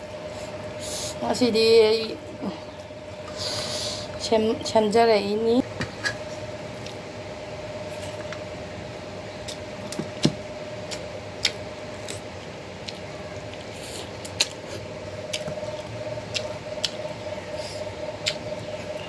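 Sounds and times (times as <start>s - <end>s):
steady low hum: 0.0s - 19.0s
chewing: 10.9s - 18.7s.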